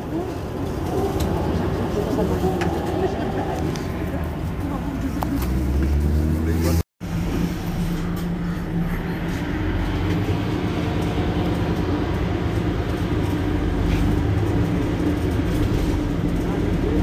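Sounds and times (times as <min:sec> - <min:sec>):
bus diesel engine running: 0:00.0 - 0:17.0.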